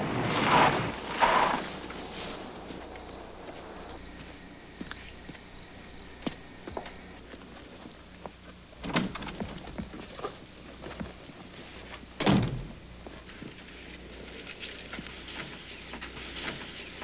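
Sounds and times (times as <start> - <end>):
crickets chirping: 0.0 - 17.0
door thuds: 12.2 - 12.8.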